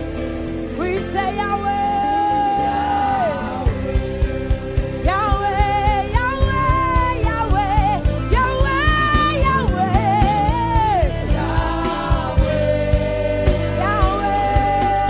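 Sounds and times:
electric guitar: 0.0 - 15.0
person singing with vibrato: 0.0 - 15.0
drum kit steady beat: 3.6 - 15.0.

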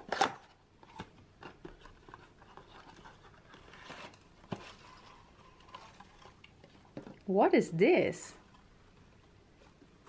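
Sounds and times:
cardboard box rustling: 0.9 - 7.0.

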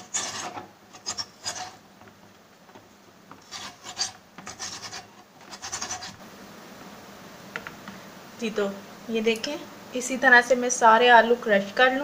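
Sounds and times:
potato grated on metal grater: 0.0 - 1.8, 3.4 - 6.2.

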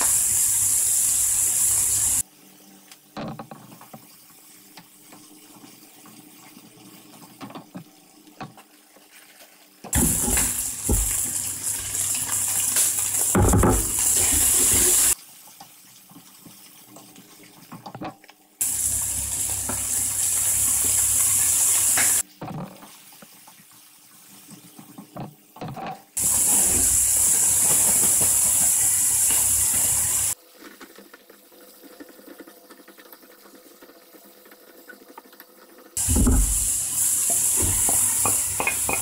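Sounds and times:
meat sizzling in a frying pan: 0.0 - 2.2, 9.9 - 16.8, 18.6 - 22.3, 26.2 - 30.4, 36.0 - 39.0.

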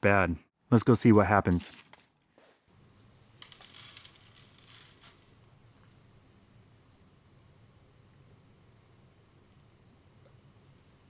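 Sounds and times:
faint low hum: 2.7 - 11.0.

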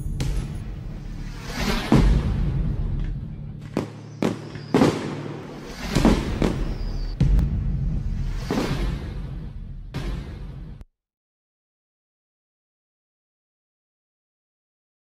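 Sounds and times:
background music: 0.0 - 10.8
fireworks bursting with crackle: 0.0 - 10.8.

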